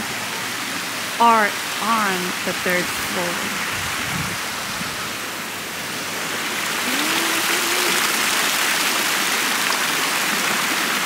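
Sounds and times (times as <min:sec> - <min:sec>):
fountain water splashing: 0:00.0 - 0:11.0.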